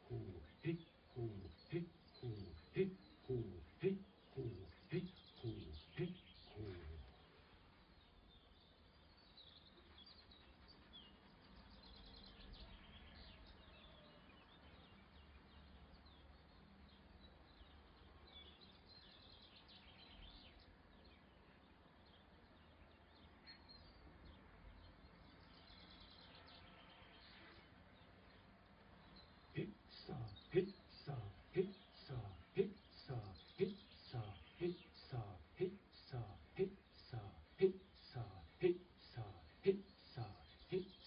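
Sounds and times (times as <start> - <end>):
bird chirps and trills: 0.0 - 41.0.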